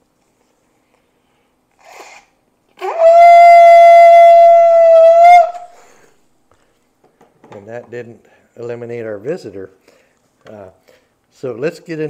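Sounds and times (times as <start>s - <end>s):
shofar long blast: 2.8s - 5.8s.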